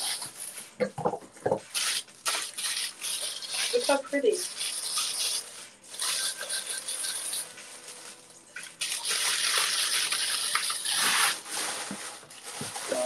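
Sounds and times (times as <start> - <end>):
tissue paper rustling: 5.3 - 8.3, 10.8 - 13.0.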